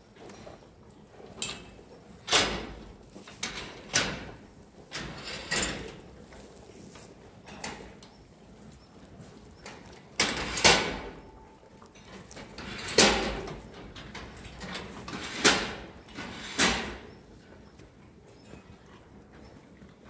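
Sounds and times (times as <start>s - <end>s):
steel feed barrier clanking: 1.4s - 6.2s, 9.6s - 17.1s.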